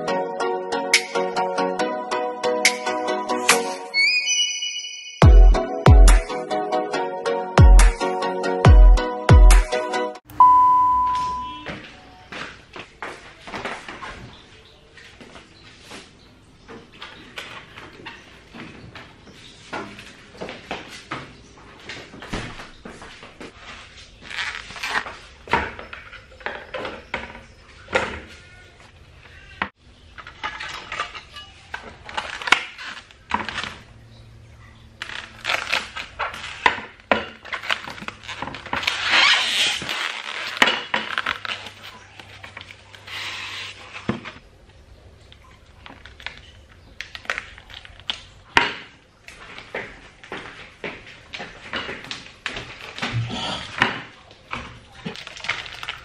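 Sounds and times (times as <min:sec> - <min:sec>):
plastic bag crinkling: 0:35.0 - 0:44.1, 0:45.7 - 0:48.5, 0:55.1 - 0:56.0.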